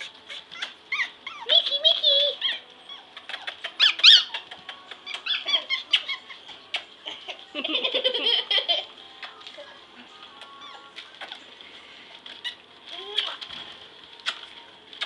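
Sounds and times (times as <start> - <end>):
puppies whining and yipping: 0.0 - 7.0, 10.4 - 11.7
girl giggling: 7.0 - 8.9.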